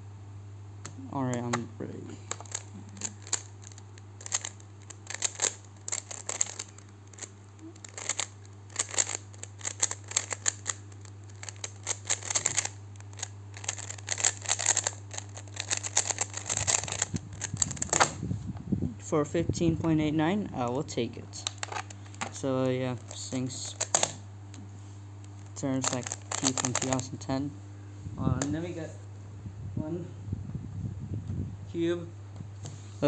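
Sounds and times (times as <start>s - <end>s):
steady low hum: 0.0s - 33.0s
puzzle cube layers clicking: 2.3s - 17.8s.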